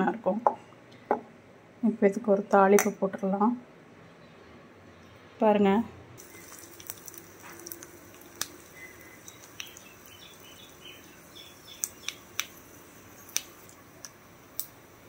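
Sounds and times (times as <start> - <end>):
seeds popping in hot oil: 6.2 - 15.0.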